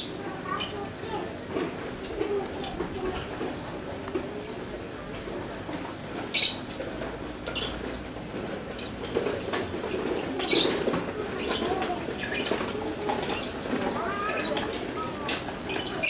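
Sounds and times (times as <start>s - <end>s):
lovebirds chirping shrilly: 8.7s - 14.7s.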